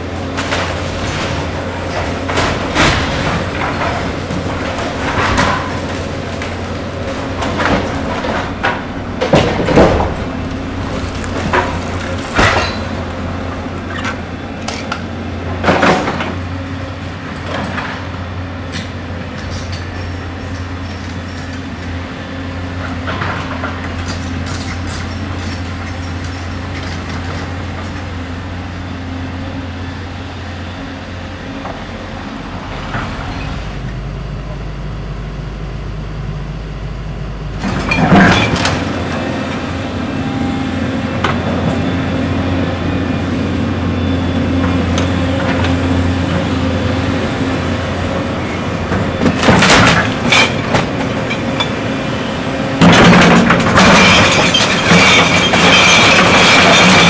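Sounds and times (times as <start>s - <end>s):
excavator diesel engine running: 0.0s - 57.0s
falling masonry crashes: 0.2s - 14.3s, 37.6s - 39.0s, 49.2s - 51.3s, 52.8s - 57.0s.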